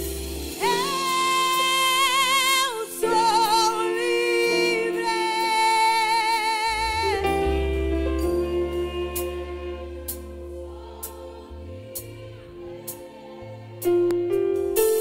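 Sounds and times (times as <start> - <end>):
sustained keyboard chords: 0.0 - 15.0
woman singing with vibrato: 0.6 - 11.8
low bass note: 6.7 - 12.8.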